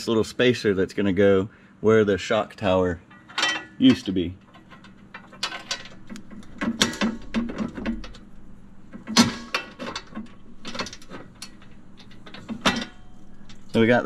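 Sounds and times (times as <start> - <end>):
metal parts clinking: 3.1 - 14.0.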